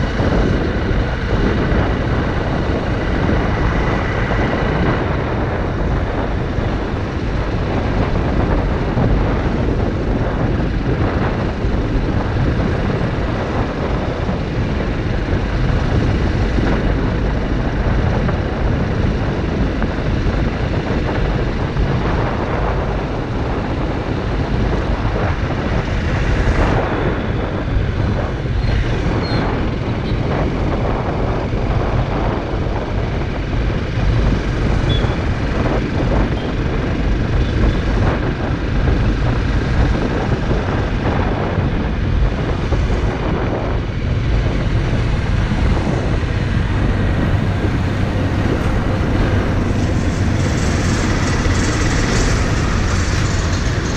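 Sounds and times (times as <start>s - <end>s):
motorcycle engine running: 0.0s - 53.9s
road noise: 0.0s - 53.9s
wind buffeting microphone: 0.0s - 53.9s.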